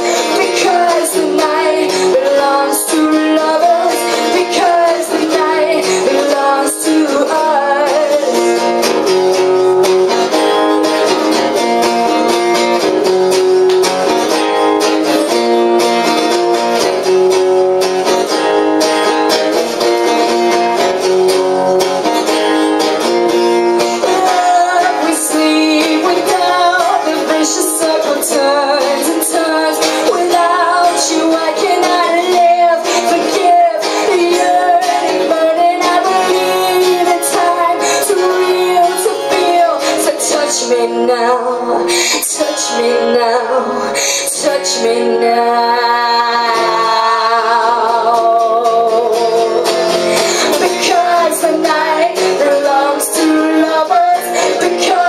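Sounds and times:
woman singing: 0.0s - 12.9s, 23.8s - 55.0s
acoustic guitar strumming: 0.0s - 55.0s.

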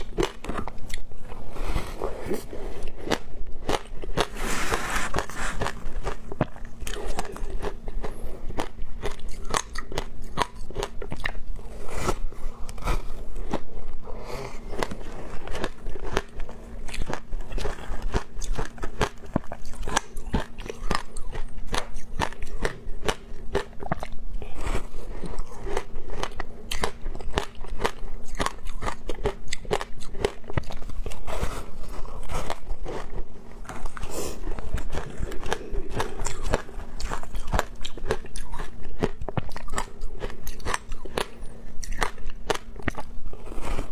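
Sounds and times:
teeth crunching ice: 5.6s - 11.4s, 14.6s - 24.2s, 25.2s - 43.9s.

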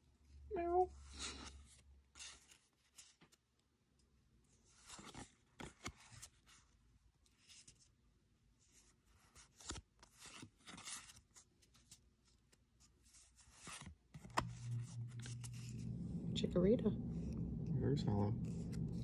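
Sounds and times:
trading cards sliding and rustling: 1.0s - 3.4s, 4.6s - 6.6s, 8.7s - 16.1s, 18.2s - 19.0s.

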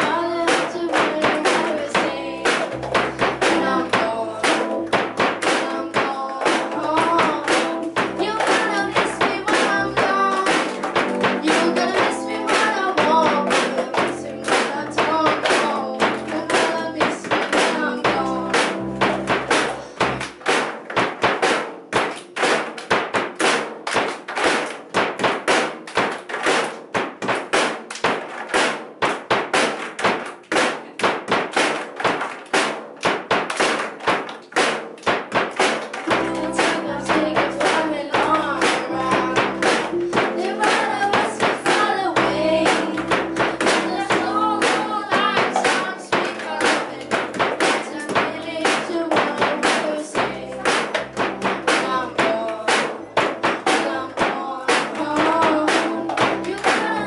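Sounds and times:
hands clapping: 0.0s - 57.0s
keyboard music: 1.6s - 20.3s, 36.1s - 57.0s
voices: 36.1s - 47.1s, 51.7s - 57.0s.

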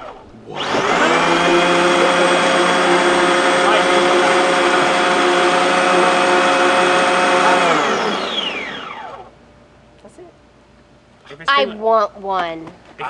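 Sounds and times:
blender whirring and spinning down: 0.0s - 9.3s.

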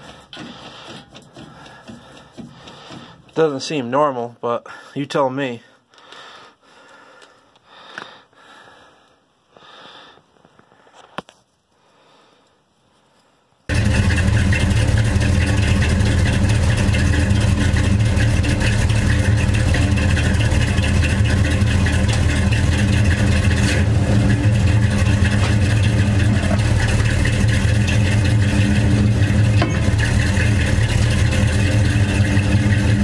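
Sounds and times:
pickup truck running low hum: 13.7s - 33.0s.

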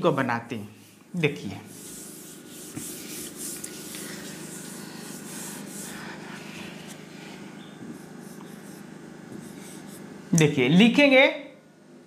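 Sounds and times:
steady low hum: 0.0s - 12.0s
hand rubbing on screen: 1.6s - 10.2s.

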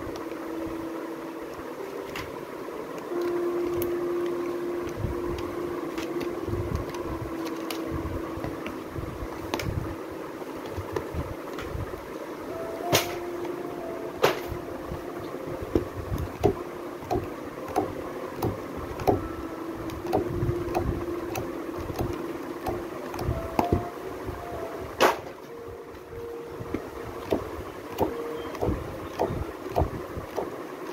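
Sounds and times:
faint hum: 0.0s - 30.9s
low rumbling background: 0.0s - 30.9s
book pages flipping: 1.5s - 9.8s.

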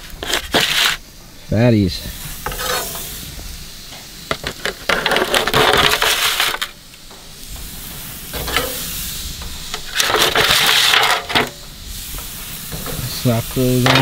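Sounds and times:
patties sizzling on grill: 0.0s - 14.0s
metal spatula scraping foil pan: 0.2s - 1.0s, 2.4s - 3.1s, 4.8s - 6.7s, 9.8s - 11.5s.

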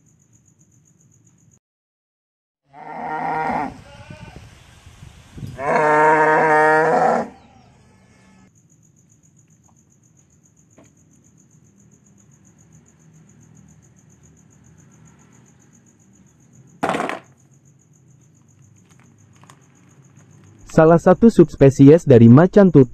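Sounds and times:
crickets trilling: 0.0s - 1.6s, 2.8s - 22.9s
plastic toy clattering into basket: 16.8s - 17.4s.

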